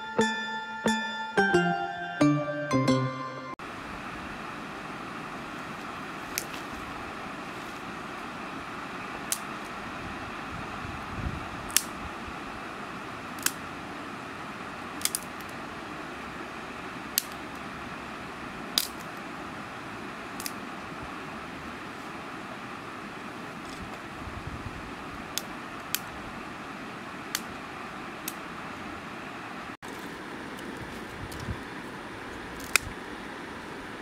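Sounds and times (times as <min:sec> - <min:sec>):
sticks snapping by hand: 0:06.3 - 0:06.7, 0:09.2 - 0:09.8, 0:11.6 - 0:12.0, 0:13.3 - 0:13.6, 0:15.0 - 0:15.6, 0:17.1 - 0:17.6, 0:18.7 - 0:19.2, 0:20.4 - 0:20.6, 0:25.3 - 0:26.1, 0:27.3 - 0:27.6, 0:28.2 - 0:28.4, 0:32.6 - 0:33.0.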